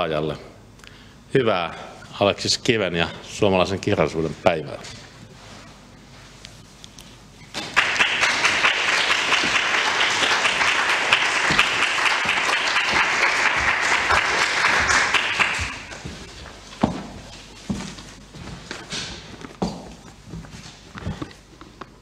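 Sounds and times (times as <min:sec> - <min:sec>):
small audience applauding: 0:07.6 - 0:16.3.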